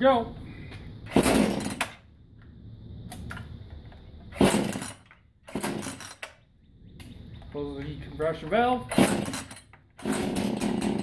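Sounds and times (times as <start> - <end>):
chainsaw recoil starter pulls: 1.1 - 2.0, 4.3 - 6.4, 8.8 - 11.0.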